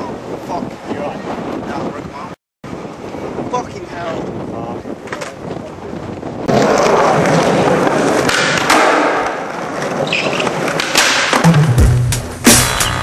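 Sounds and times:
skateboard wheels rolling on concrete: 0:00.0 - 0:11.7
song with heavy bass beat: 0:11.4 - 0:13.0.

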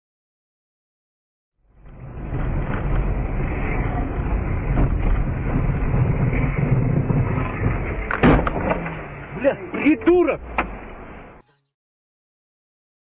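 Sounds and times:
car engine and road rumble: 0:01.6 - 0:11.4.

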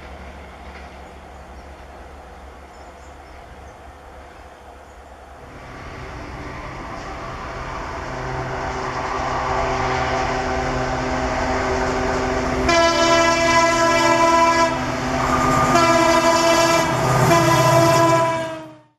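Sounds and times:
locomotive drone: 0:00.0 - 0:18.9
locomotive horn blast: 0:07.8 - 0:18.9.

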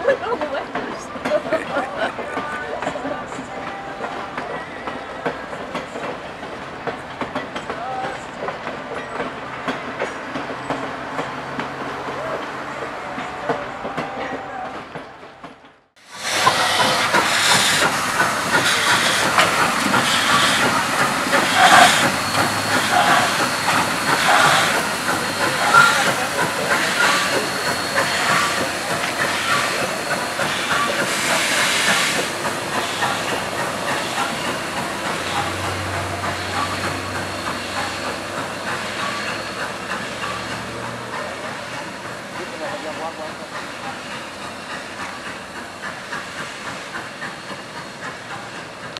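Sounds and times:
steam hissing: 0:16.0 - 0:48.9
steam locomotive exhaust chuffs: 0:16.0 - 0:48.9.

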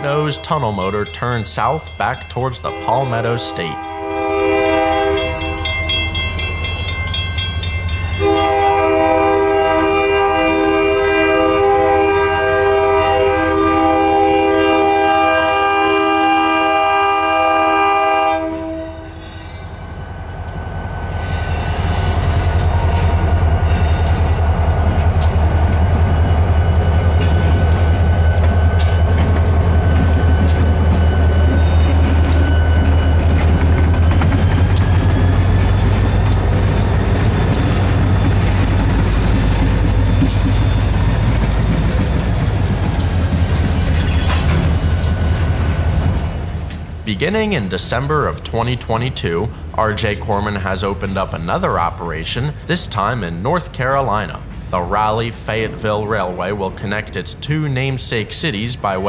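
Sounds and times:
diesel locomotive rumble: 0:00.0 - 0:59.0
locomotive horn blowing: 0:02.6 - 0:05.6, 0:08.2 - 0:19.2
wheels clicking on rail: 0:22.2 - 0:46.0.

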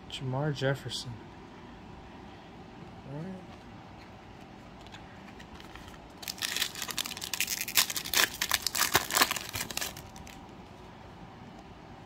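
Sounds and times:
foil wrapper tearing and crinkling: 0:05.4 - 0:10.4.

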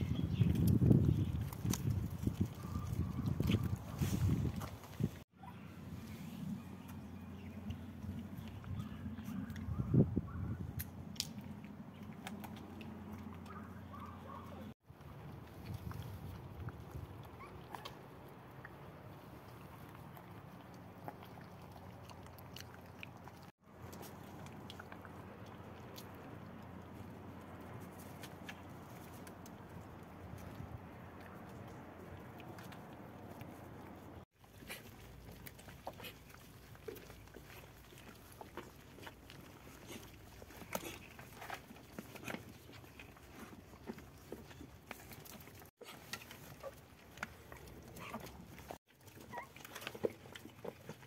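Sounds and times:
puppies chewing and lapping: 0:00.0 - 0:51.0
puppies suckling: 0:34.4 - 0:51.0.

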